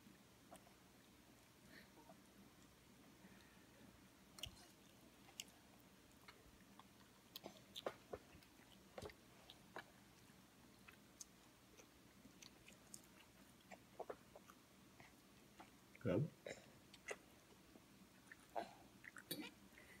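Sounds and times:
toddler chewing: 6.2s - 15.8s, 16.9s - 17.4s.

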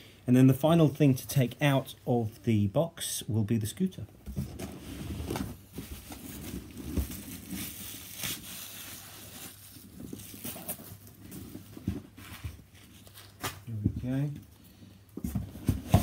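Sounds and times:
cardboard scraping and rustling: 4.3s - 13.8s, 15.2s - 16.0s.

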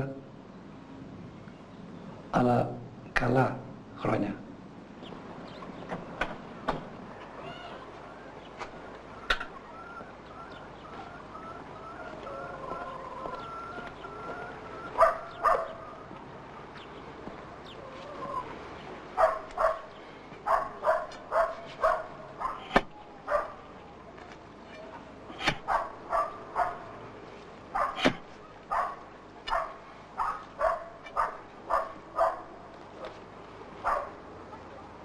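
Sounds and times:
dog barking: 15.0s - 15.8s, 19.2s - 23.6s, 25.6s - 26.9s, 27.7s - 33.1s, 33.8s - 34.2s.

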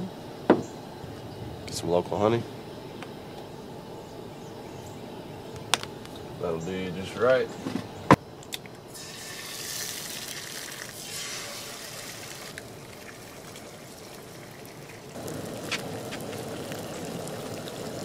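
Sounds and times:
eggs sizzling in a skillet: 8.9s - 18.0s.

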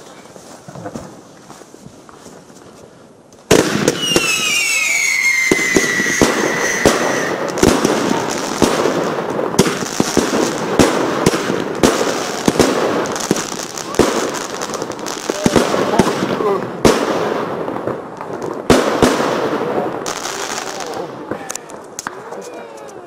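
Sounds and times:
firework crackling and hissing: 0.0s - 23.0s
firework shots: 3.4s - 22.4s
falling firework whistles: 3.8s - 8.3s.

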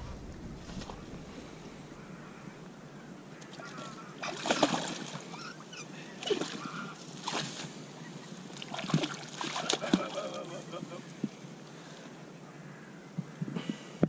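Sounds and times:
fish thrashing and splashing: 3.6s - 5.3s, 8.6s - 10.5s.

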